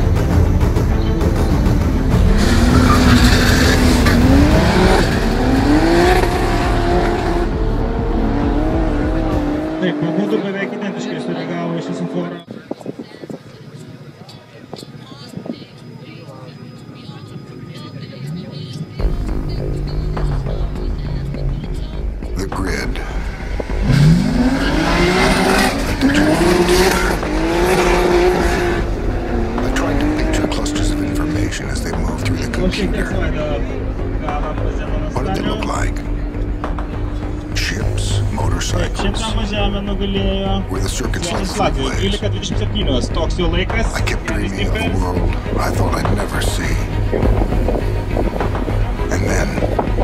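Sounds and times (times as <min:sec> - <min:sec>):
car engine accelerating hard: 0:01.4 - 0:12.5, 0:23.0 - 0:40.0.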